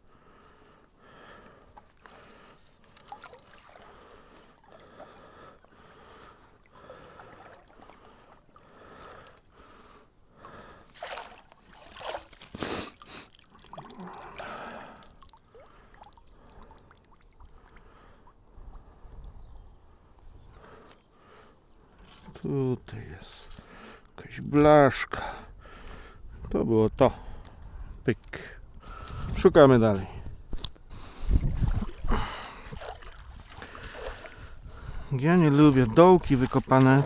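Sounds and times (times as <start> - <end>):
shallow water sloshing: 1.2 - 19.1, 30.9 - 37.0
water splashing: 2.0 - 9.4, 10.4 - 18.5, 31.1 - 37.0.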